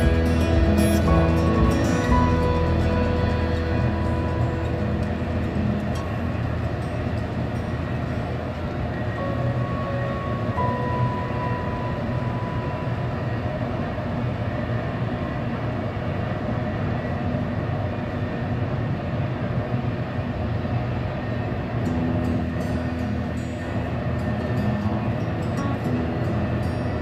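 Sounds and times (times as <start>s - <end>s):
freight train rumbling on rails: 0.0s - 27.0s.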